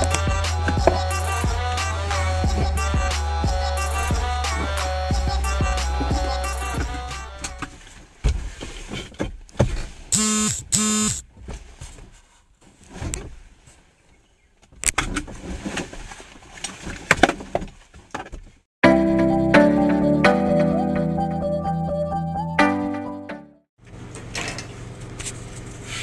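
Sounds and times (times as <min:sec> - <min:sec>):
short beeps: 0:10.2 - 0:11.2.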